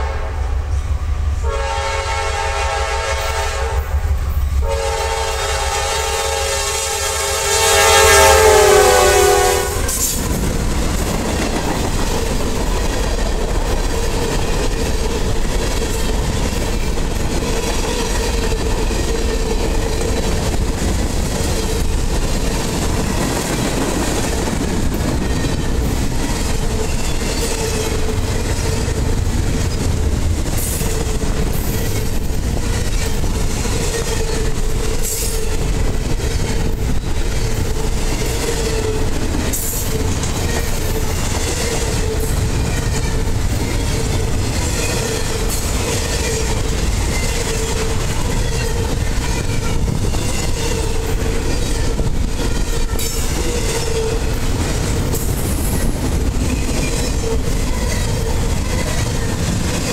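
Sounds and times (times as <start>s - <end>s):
locomotive air horn blasts: 0.0s - 0.8s, 1.4s - 10.2s
freight cars rolling on rails: 8.2s - 59.9s.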